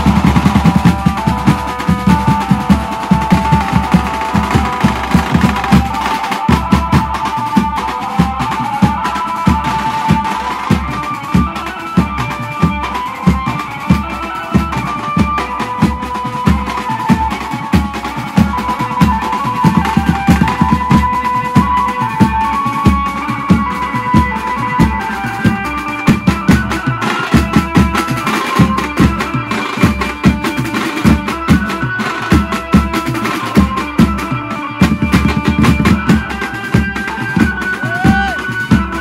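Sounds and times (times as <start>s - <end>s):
fast dense drumming: 0.0s - 39.0s
amplified banjo melody: 8.4s - 37.9s.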